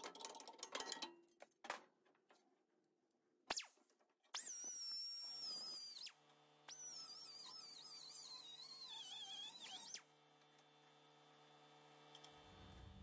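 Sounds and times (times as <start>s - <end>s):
grinder whining on metal: 4.4s - 10.1s.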